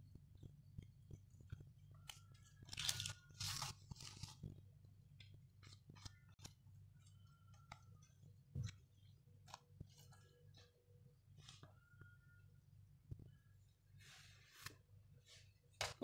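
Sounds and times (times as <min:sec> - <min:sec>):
pastry sheets crinkling: 0:01.0 - 0:08.1.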